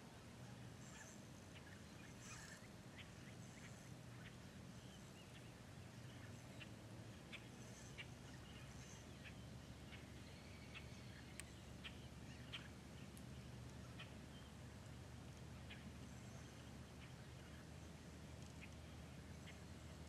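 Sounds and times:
low outdoor rumble: 0:00.0 - 0:20.0
short bird calls: 0:00.5 - 0:14.6.

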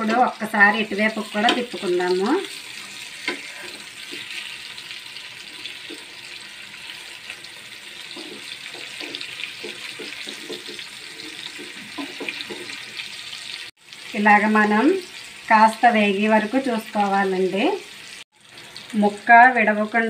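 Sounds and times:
spatula knocking and scraping pan: 0:00.0 - 0:04.8, 0:05.5 - 0:06.6, 0:07.8 - 0:13.6
fish sizzling in hot oil: 0:00.0 - 0:20.0.

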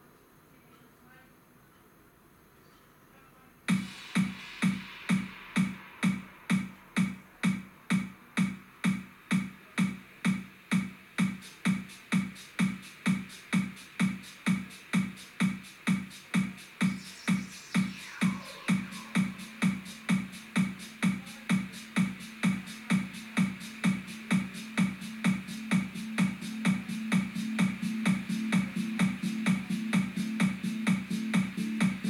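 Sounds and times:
drum machine beat: 0:03.7 - 0:32.0
held synth tone: 0:16.8 - 0:20.3.

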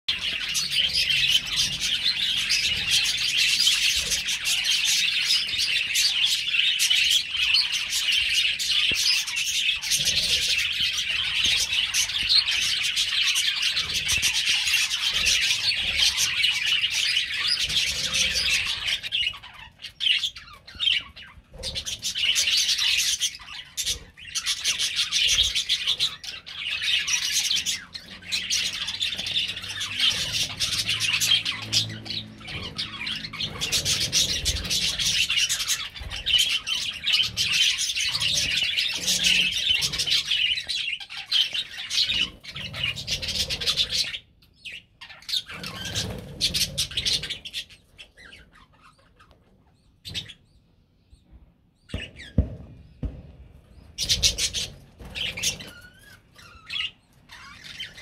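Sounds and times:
budgerigars chattering and chirping: 0:00.1 - 0:58.0.

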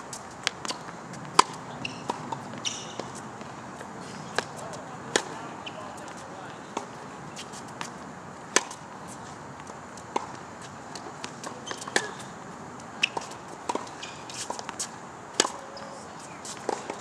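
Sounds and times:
racket striking tennis ball: 0:00.0 - 0:12.4, 0:13.0 - 0:17.0
tennis ball bouncing: 0:00.0 - 0:17.0.

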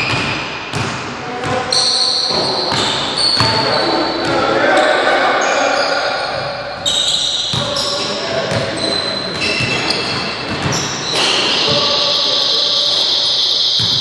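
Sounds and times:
basketball bouncing: 0:00.0 - 0:01.7, 0:02.3 - 0:04.4, 0:08.5 - 0:10.9, 0:13.8 - 0:14.0
sneakers squeaking: 0:00.0 - 0:14.0
players' voices: 0:01.1 - 0:14.0.

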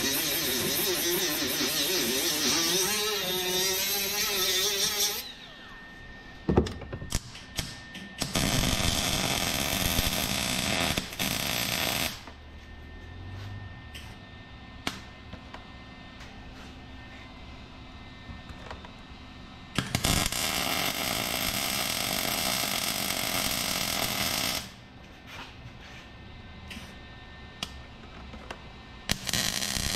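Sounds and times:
handheld grinder grinding metal: 0:00.0 - 0:05.3
welder sizzling: 0:00.0 - 0:05.4, 0:07.6 - 0:12.2, 0:19.8 - 0:24.7, 0:29.1 - 0:29.9.

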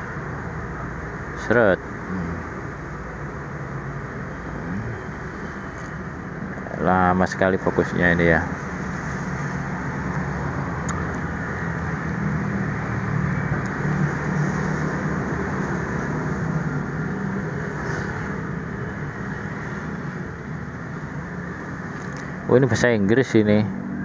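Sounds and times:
faint hum: 0:00.0 - 0:14.5
low mechanical drone: 0:00.0 - 0:24.0.

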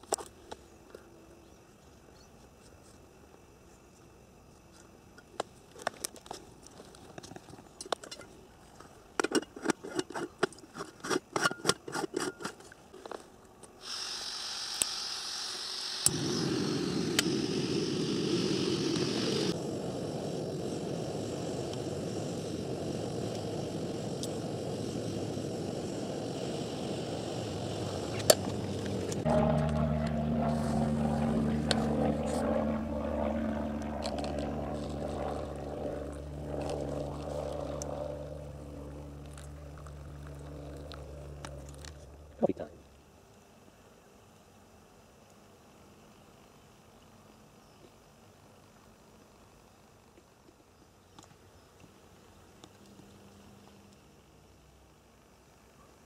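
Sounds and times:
metal clinks and scrapes: 0:09.2 - 0:13.2
gas hissing from stove: 0:13.8 - 0:29.3
burner flame rushing: 0:14.1 - 0:42.4
low hum: 0:16.1 - 0:42.9.

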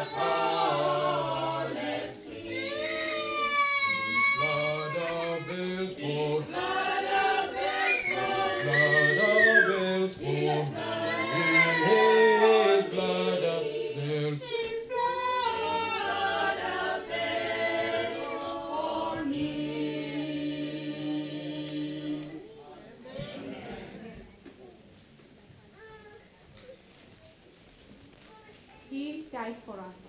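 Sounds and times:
group singing a hymn: 0:00.0 - 0:24.4.

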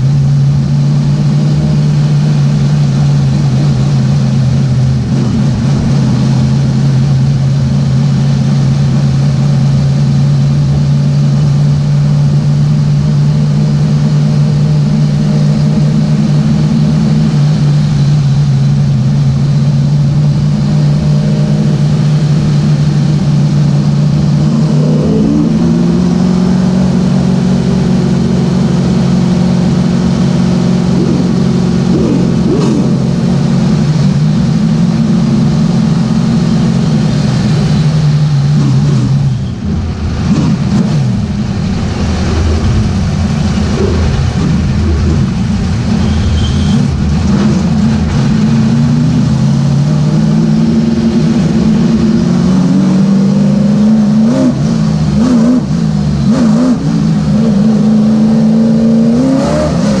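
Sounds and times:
race car engine revving: 0:00.0 - 1:00.0.

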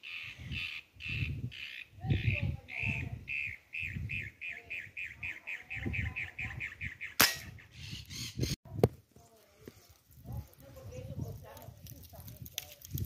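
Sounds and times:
air rifle shot: 0:07.2 - 0:07.6.

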